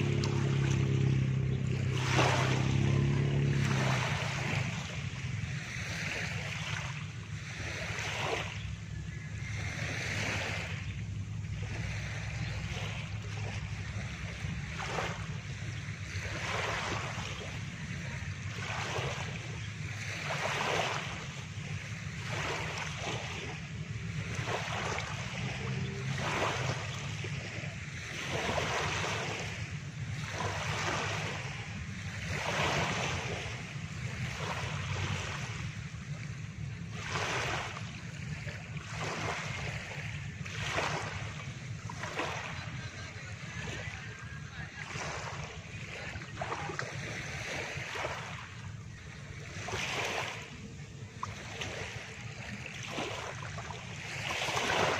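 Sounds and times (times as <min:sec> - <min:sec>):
low rumble: 0:00.0 - 0:20.0
small waves breaking on shore: 0:00.0 - 0:54.9.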